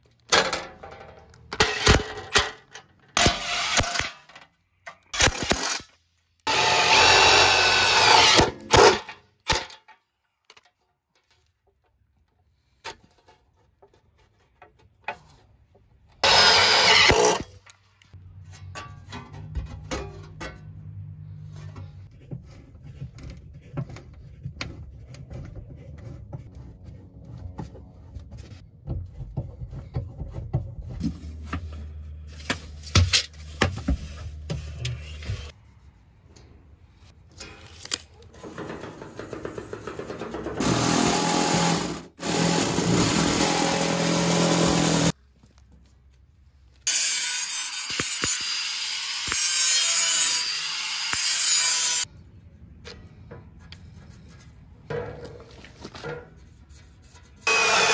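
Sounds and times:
loud power tool running: 6.5s - 8.5s, 16.2s - 17.4s, 40.6s - 45.1s, 57.5s - 57.9s
angle grinder cutting metal: 6.5s - 8.9s, 16.2s - 17.5s, 40.6s - 45.1s, 46.9s - 52.1s, 57.5s - 57.9s
metal sheet clicking and knocking: 38.4s - 40.6s.

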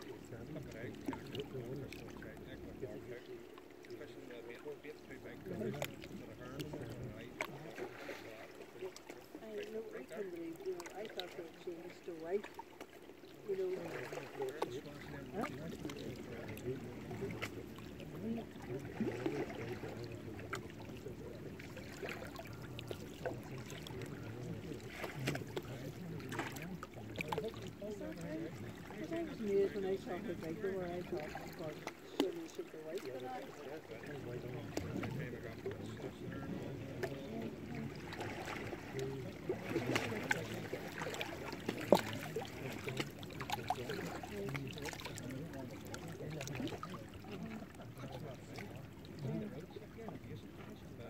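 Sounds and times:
low wash of moving water: 0.0s - 51.0s
small waves lapping on rocks: 0.0s - 51.0s
waves splashing against rocks: 36.2s - 49.2s.

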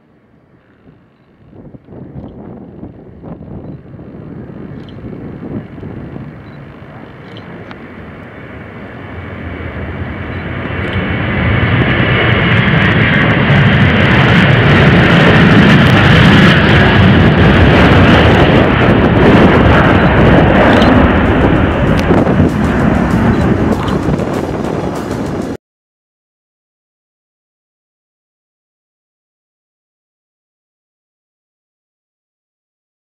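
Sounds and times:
jet engines at takeoff power: 0.0s - 25.6s.

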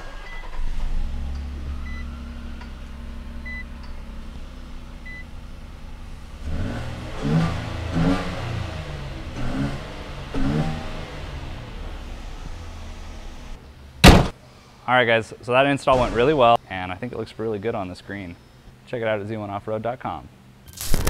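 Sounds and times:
car engine idling and revving: 0.0s - 14.4s.

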